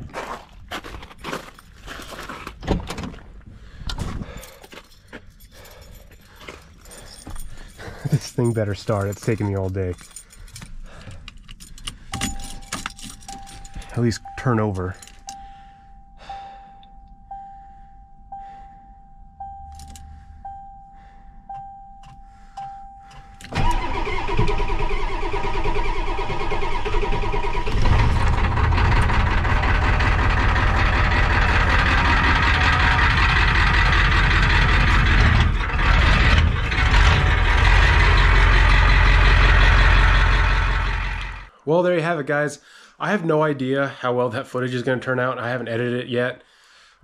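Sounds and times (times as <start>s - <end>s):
warning chime pinging: 12.2s - 23.4s
diesel engine cranking and idling: 21.4s - 41.5s.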